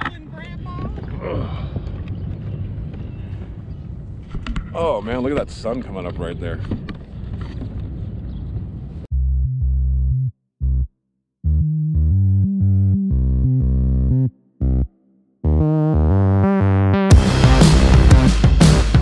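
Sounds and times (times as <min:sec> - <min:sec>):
synthesizer bass line: 0:09.1 - 0:19.0
full band music: 0:17.1 - 0:19.0.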